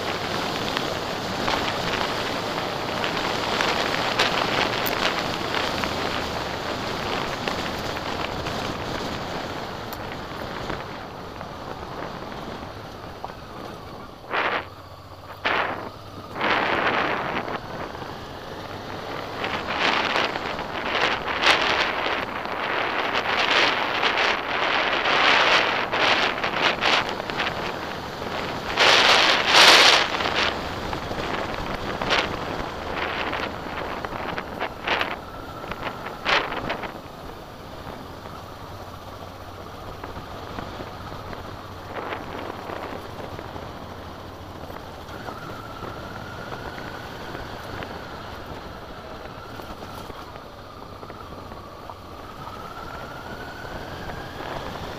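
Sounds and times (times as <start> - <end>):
tyres on gravel: 0.0 - 52.5
motorcycle engine running: 0.0 - 54.9
wind buffeting microphone: 0.0 - 54.9.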